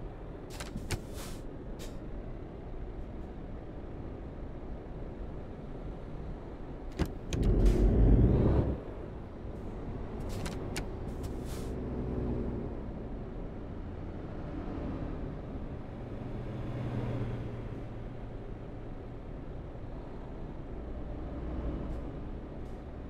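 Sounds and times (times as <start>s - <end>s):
car engine and road hum: 0.0s - 23.0s.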